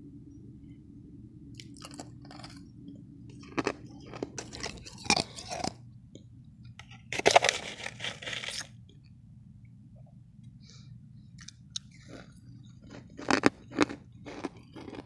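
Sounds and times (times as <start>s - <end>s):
low steady hum: 0.0s - 15.0s
ice being crunched and chewed: 1.6s - 2.6s, 3.4s - 5.8s, 6.8s - 8.7s, 11.4s - 15.0s.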